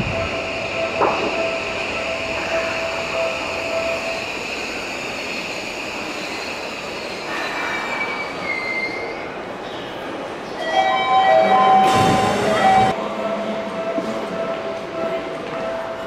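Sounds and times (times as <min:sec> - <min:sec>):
train wheels squealing on rails: 0:00.0 - 0:12.9.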